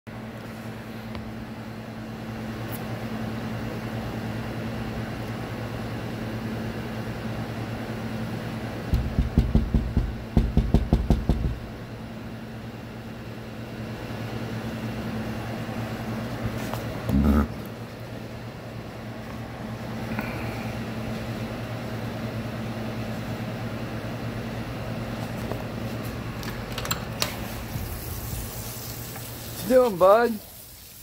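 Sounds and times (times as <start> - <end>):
loud knocks or rattles: 8.9 - 11.7
machine motor hum: 13.6 - 28.6.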